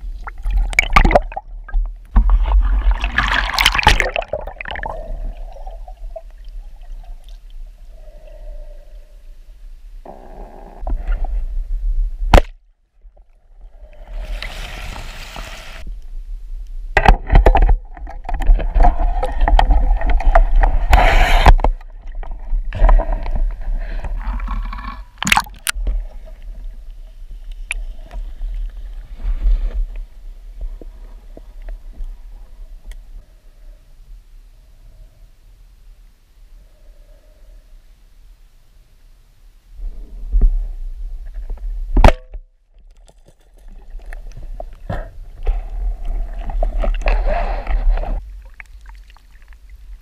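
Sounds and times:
water gurgling and sloshing: 0.0 - 9.1, 13.0 - 16.0, 17.0 - 33.0, 42.8 - 50.0
deep underwater rumble: 0.0 - 38.6, 43.6 - 50.0.

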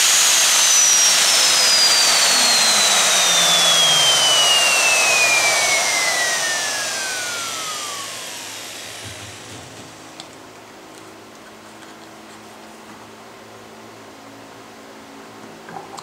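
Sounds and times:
router whine spinning down: 0.0 - 10.4.

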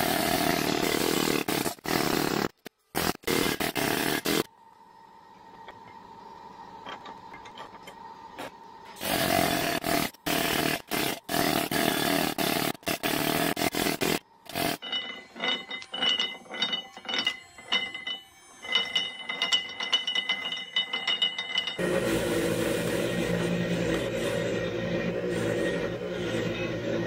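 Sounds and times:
pneumatic needle scaler hammering: 9.0 - 24.4
rusty gears clicking and clattering: 12.6 - 21.8.

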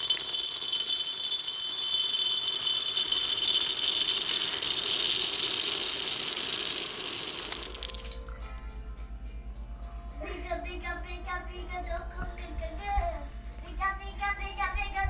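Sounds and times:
small hard pieces rattling: 0.0 - 8.3.

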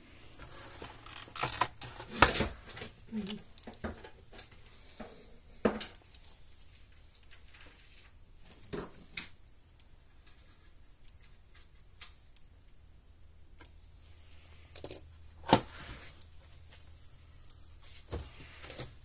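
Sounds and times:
plastic case parts handled: 0.4 - 2.8.

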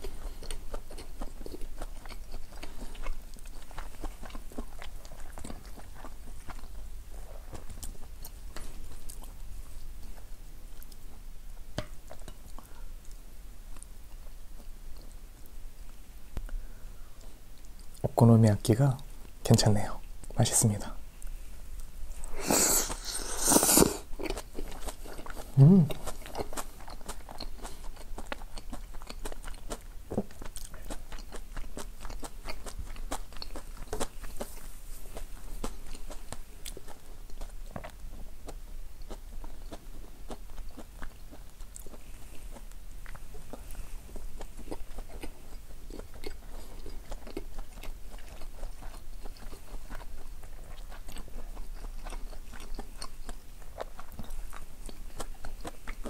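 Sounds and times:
wet chewing: 0.0 - 11.2, 21.8 - 56.0
person slurping a bite: 22.3 - 24.4, 25.5 - 26.2.

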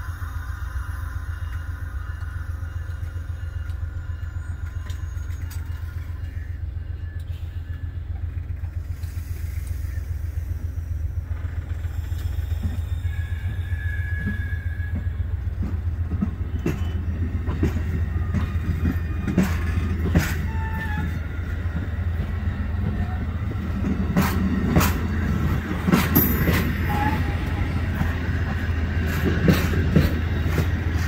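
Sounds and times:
train coaches rumbling past: 0.0 - 31.0
train wheel clicks and clunks: 1.4 - 6.4, 11.2 - 31.0.

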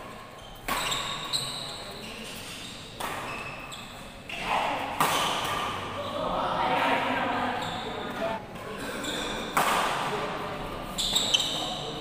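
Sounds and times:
racket hitting shuttlecock: 0.6 - 1.4, 2.9 - 3.5, 4.3 - 5.8, 9.5 - 10.1
voices: 4.3 - 12.0.

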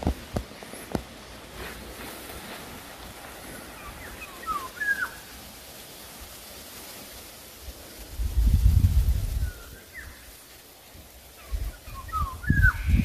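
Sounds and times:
faint outdoor background: 0.0 - 13.0
bird calls gliding downward: 3.5 - 5.5, 9.4 - 10.4, 11.3 - 13.0.

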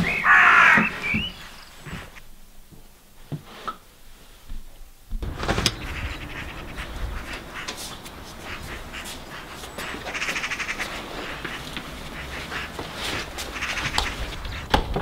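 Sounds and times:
crow cawing: 0.0 - 1.2, 5.5 - 14.6
low rumble: 5.1 - 10.0.

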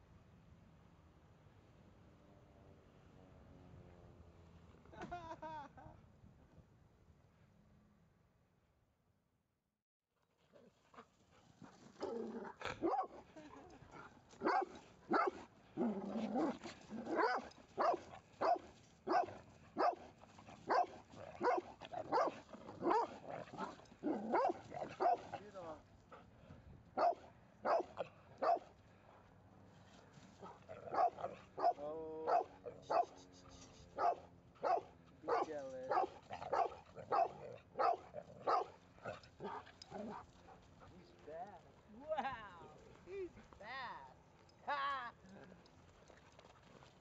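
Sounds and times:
small dogs barking: 12.0 - 25.4, 27.0 - 28.7, 30.4 - 40.6
dog growl-like call: 15.8 - 17.3.

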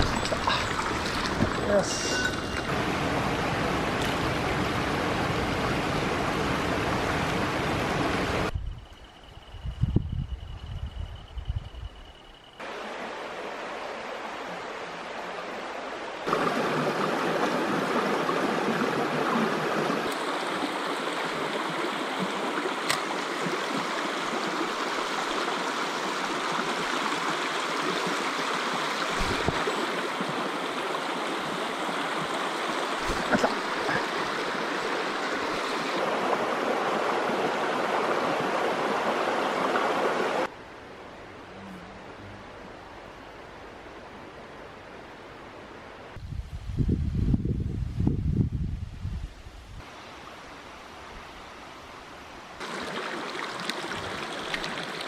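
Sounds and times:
stream rushing over rocks: 0.0 - 8.5, 12.6 - 40.5, 52.5 - 55.0.

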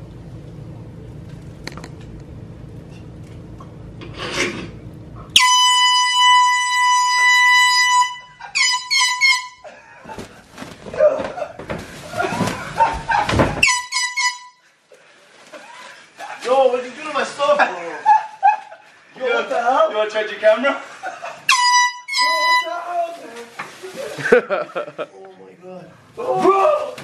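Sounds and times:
air horn blasts: 5.3 - 9.7, 13.6 - 14.7, 21.5 - 22.9
rustling commotion: 10.0 - 13.7.

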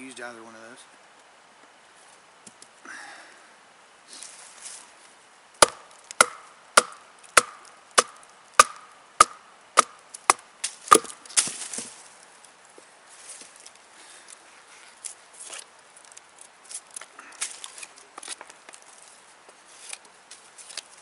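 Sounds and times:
wood crackling: 4.1 - 21.0
knife chopping wood: 5.6 - 11.9.

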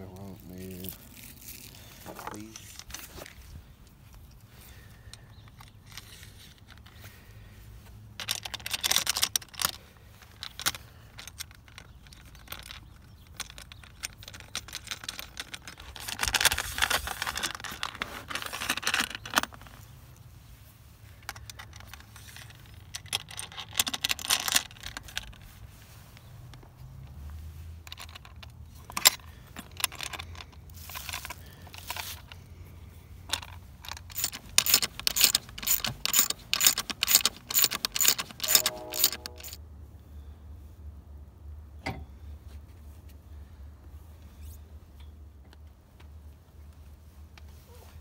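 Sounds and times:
metal hardware clinking and scraping: 8.2 - 19.8, 21.1 - 25.6, 27.8 - 32.4, 33.3 - 39.6.

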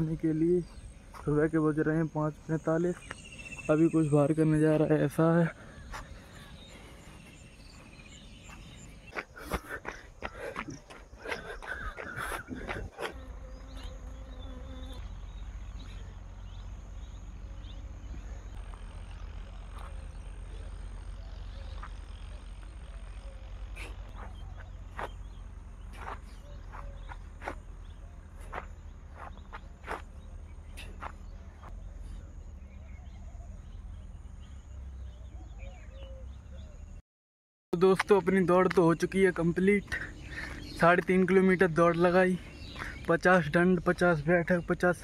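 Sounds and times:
footsteps on asphalt: 0.0 - 1.6, 2.8 - 3.9, 5.7 - 13.9, 18.0 - 31.9, 39.7 - 43.2
insects buzzing: 0.0 - 35.2.

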